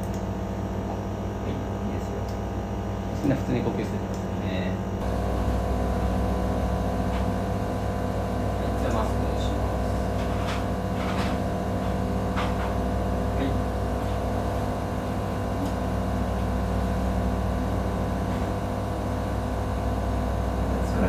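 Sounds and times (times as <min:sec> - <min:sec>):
machine hum: 0:00.0 - 0:21.0.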